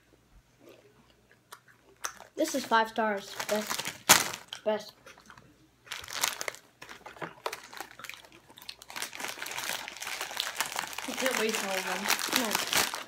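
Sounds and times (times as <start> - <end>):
plastic packaging crinkling: 2.2 - 4.6, 5.9 - 13.0.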